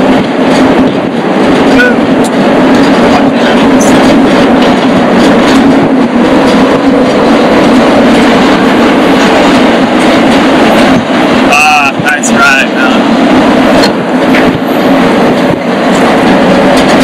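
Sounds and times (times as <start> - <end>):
freight train rumbling and rattling: 0.0 - 17.0
train wheels clicking: 0.0 - 17.0.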